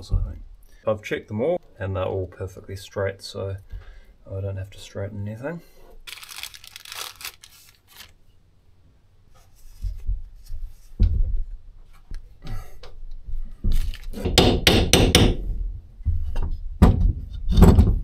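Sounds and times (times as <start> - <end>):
hammer tapping on metal: 14.4 - 15.4.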